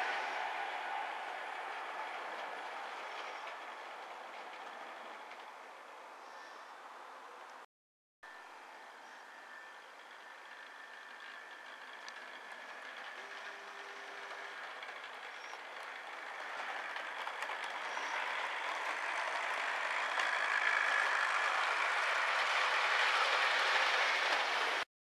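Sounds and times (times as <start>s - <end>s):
train wheels rolling on rails: 0.0s - 6.1s, 9.0s - 24.8s
model train motor whirring: 9.1s - 24.8s.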